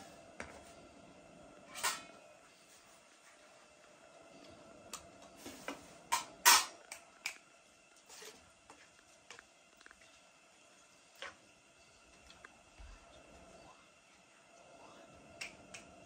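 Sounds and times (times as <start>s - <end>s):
metal bowls clinking: 1.7s - 2.2s.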